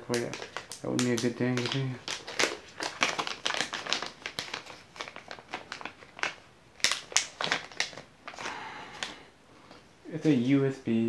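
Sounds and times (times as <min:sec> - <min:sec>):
packaging crinkling: 0:00.0 - 0:09.8.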